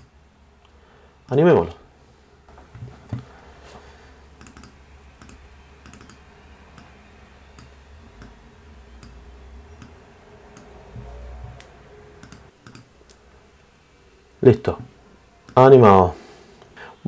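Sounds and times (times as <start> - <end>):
faint low hum: 0.0 - 17.0
keyboard keystrokes: 4.4 - 6.2, 11.4 - 12.9
computer mouse clicks: 4.4 - 8.4, 9.0 - 10.7, 11.4 - 13.2.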